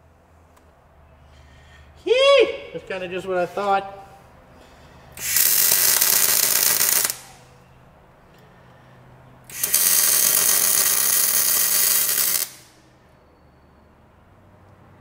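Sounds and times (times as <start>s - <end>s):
welder arc buzzing: 5.2s - 7.5s, 9.5s - 12.8s.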